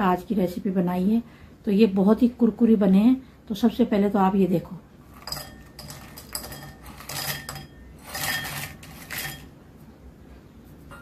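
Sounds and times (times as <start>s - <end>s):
fried snacks clattering into a bowl: 5.2s - 9.5s.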